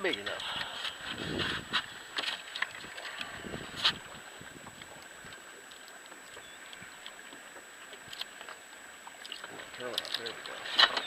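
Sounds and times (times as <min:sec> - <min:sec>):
light wind: 0:00.0 - 0:11.0
water lapping around boat: 0:00.0 - 0:11.0
faint small ticks: 0:04.6 - 0:11.0.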